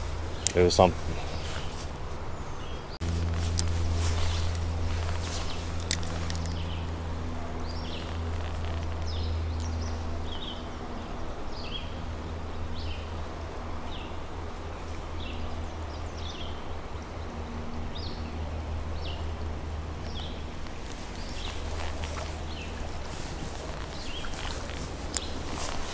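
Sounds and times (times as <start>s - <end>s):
bird chirping: 0.0s - 6.9s, 20.1s - 25.9s
creek running: 0.0s - 25.9s.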